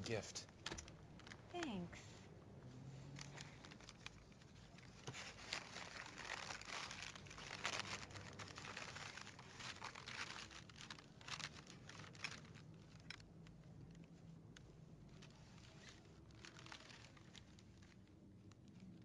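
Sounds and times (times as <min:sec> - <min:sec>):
paper rustling and crinkling: 0:03.0 - 0:13.4, 0:15.1 - 0:19.0.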